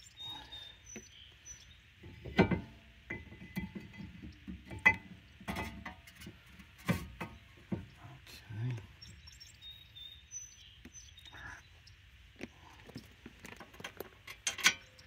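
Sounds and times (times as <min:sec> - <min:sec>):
metal clinks and knocks: 0:02.0 - 0:07.4, 0:13.5 - 0:15.0.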